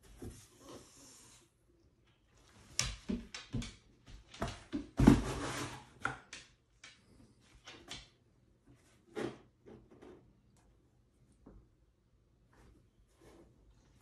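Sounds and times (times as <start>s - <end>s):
cardboard box thumps and scuffs: 5.0s - 5.7s.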